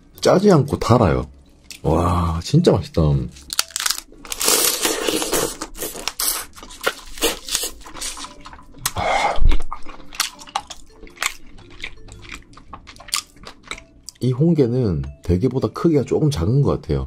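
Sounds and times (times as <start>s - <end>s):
crab shell crackling and tearing: 3.3s - 8.9s
wet sucking and chewing: 4.4s - 13.9s.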